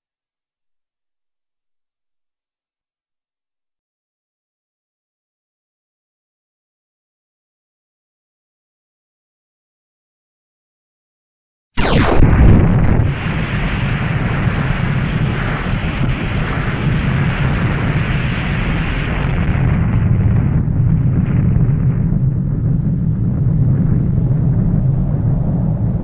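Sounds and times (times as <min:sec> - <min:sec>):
deep rumble: 0:11.8 - 0:26.0
loud explosion blast: 0:11.8 - 0:26.0.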